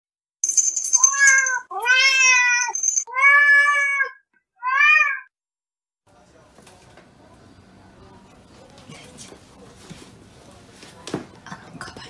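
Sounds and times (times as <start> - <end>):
cat meowing: 1.1 - 5.3.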